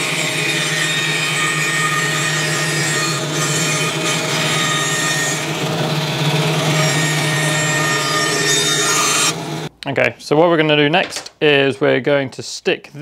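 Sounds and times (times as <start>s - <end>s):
bandsaw cutting wood: 0.0s - 9.7s.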